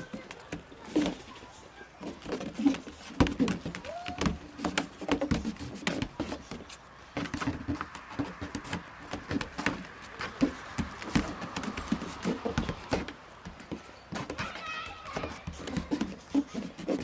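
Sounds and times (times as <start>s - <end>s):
hooves knocking on wooden roof: 2.1s - 17.0s.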